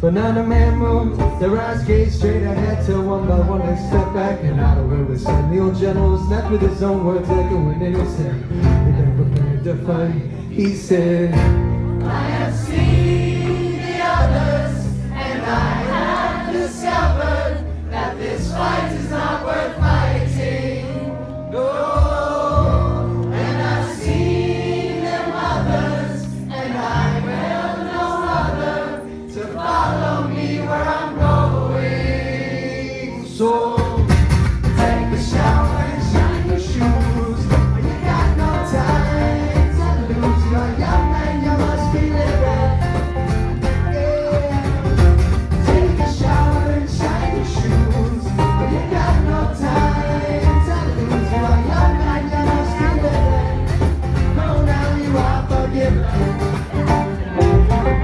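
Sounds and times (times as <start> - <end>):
folk rock band playing: 0.0 - 58.0
voices singing a chorus: 12.1 - 34.1, 34.8 - 43.2, 45.6 - 56.3.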